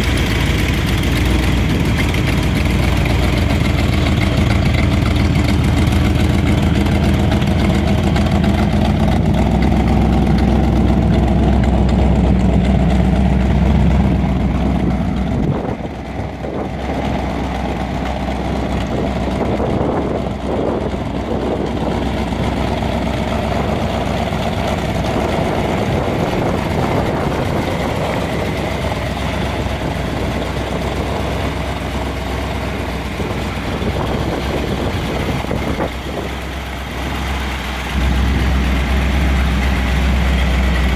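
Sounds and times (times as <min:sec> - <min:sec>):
pickup truck engine idling: 0:00.0 - 0:40.9.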